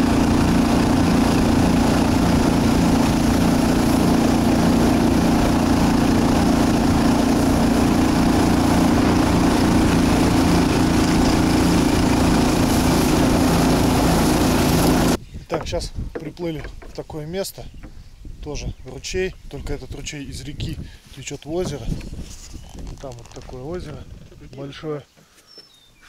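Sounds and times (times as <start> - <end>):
small boat engine running: 0.0 - 15.2.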